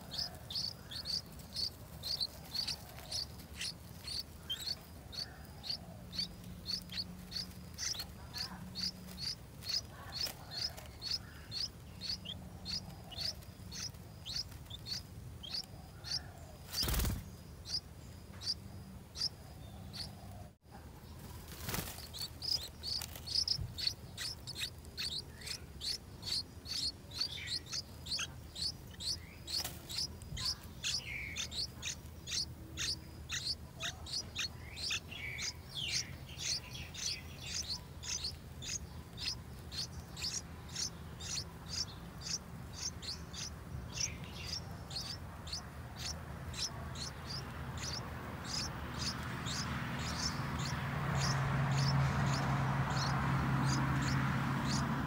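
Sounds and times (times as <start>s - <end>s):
nestlings chirping: 0.0s - 55.0s.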